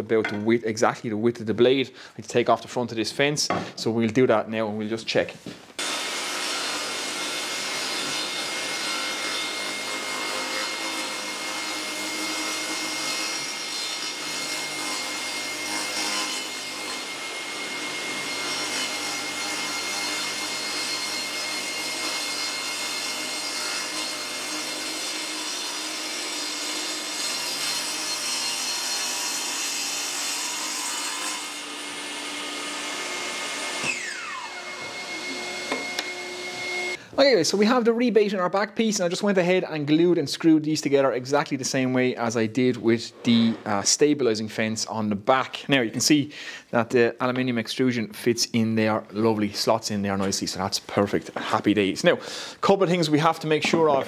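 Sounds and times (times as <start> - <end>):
table saw whine: 5.8 - 13.7, 14.3 - 37.0.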